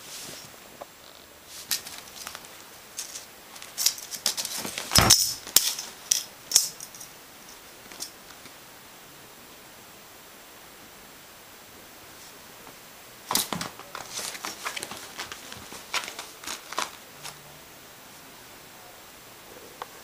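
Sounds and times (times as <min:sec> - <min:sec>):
cat scrambling on tile floor: 0:13.3 - 0:17.4.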